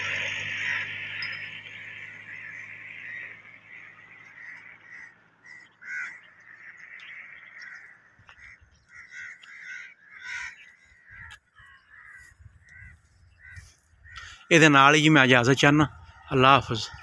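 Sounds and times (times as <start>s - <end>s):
passing car hum: 0.0s - 8.1s
crows cawing: 0.0s - 14.9s.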